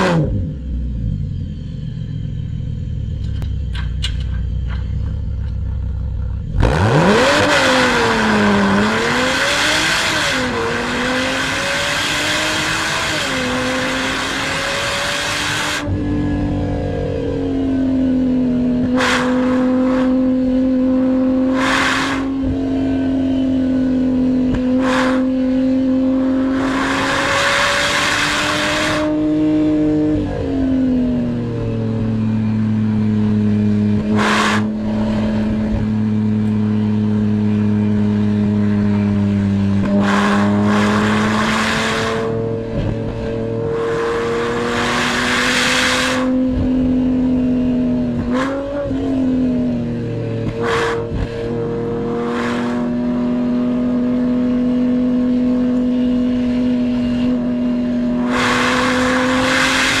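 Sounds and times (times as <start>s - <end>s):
car engine revving in cabin: 0.0s - 60.0s
loud rushing noises: 58.2s - 60.0s.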